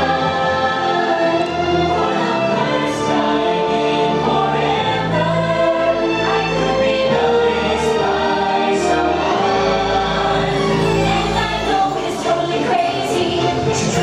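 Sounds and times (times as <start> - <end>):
choir singing: 0.0 - 14.0.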